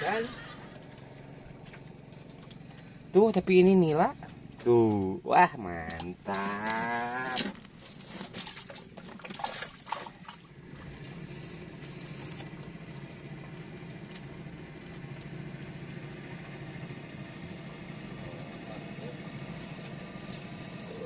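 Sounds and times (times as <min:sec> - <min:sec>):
small engine droning: 0:00.0 - 0:21.0.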